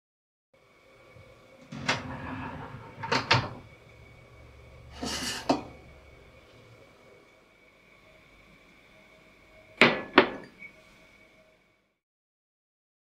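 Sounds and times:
mug scraping on shelf: 0:01.7 - 0:03.7, 0:04.9 - 0:05.8.

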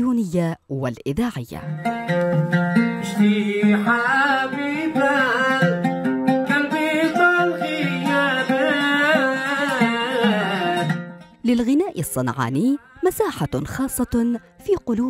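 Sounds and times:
oud plucked: 0:01.6 - 0:12.5
man singing: 0:02.3 - 0:11.2.

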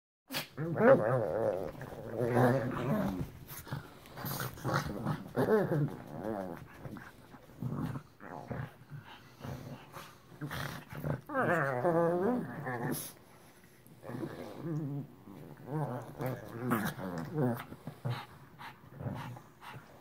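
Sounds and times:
dogs growling while playing: 0:00.3 - 0:20.0.

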